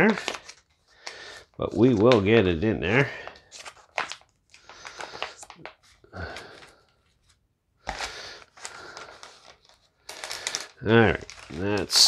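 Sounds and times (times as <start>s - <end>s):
plastic bag crinkling: 0.0s - 2.2s, 7.9s - 12.0s.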